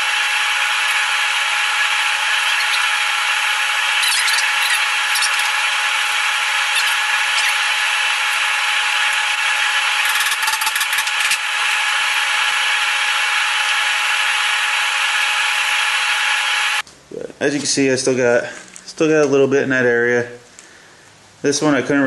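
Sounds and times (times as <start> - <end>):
machine hissing: 0.0 - 16.8.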